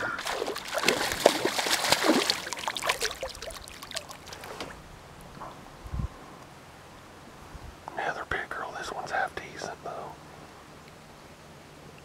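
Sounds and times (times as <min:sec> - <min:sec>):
fish splashing in water: 0:00.0 - 0:04.8.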